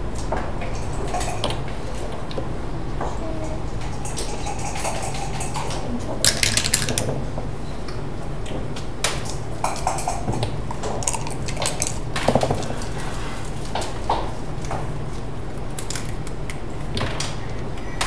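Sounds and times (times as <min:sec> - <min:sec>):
low background hum: 0:00.0 - 0:18.0
dice rattling on a board: 0:06.3 - 0:07.1.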